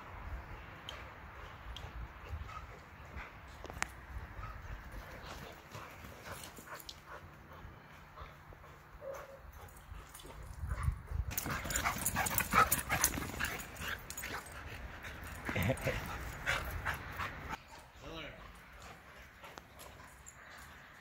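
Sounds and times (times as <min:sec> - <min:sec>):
dogs scuffling: 0:11.3 - 0:17.6.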